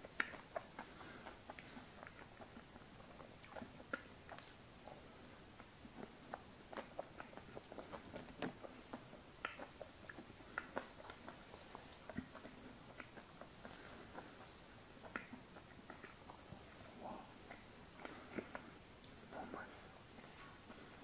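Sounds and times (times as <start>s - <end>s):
soft chewing clicks: 0.0s - 21.0s
wet lip smacks: 5.6s - 19.2s.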